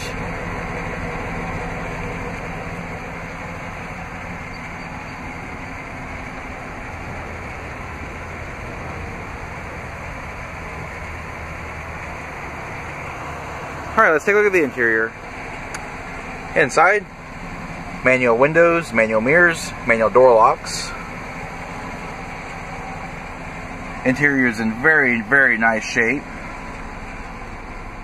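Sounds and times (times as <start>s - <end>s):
engine idling: 0.0s - 28.0s.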